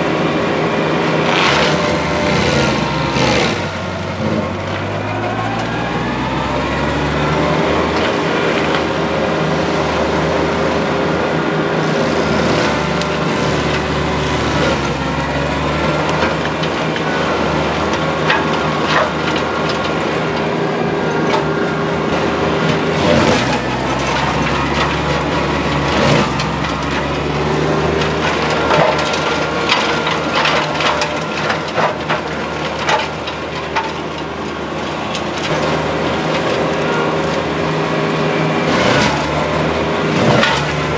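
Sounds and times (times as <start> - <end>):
tractor diesel engine running: 0.0 - 40.9
wood cracking and crunching: 1.1 - 11.2, 11.8 - 40.9
mulcher chewing brush: 11.8 - 40.9.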